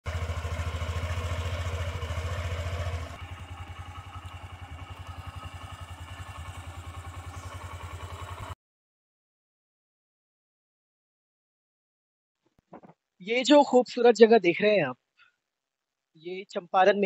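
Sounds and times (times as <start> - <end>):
small engine running: 0.0 - 8.6.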